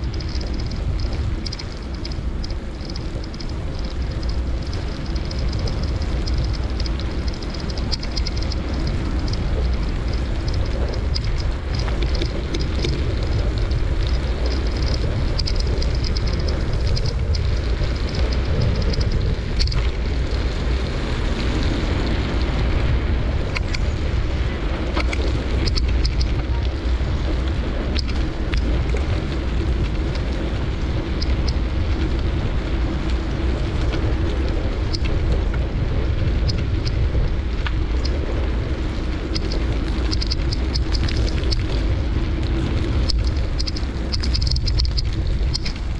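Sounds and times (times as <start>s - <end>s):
small clicks and knocks: 0.0s - 20.5s, 23.5s - 23.9s, 24.9s - 26.8s, 27.4s - 32.4s, 39.2s - 45.9s
road noise: 0.0s - 45.9s
wind rumble on microphone: 0.0s - 45.9s.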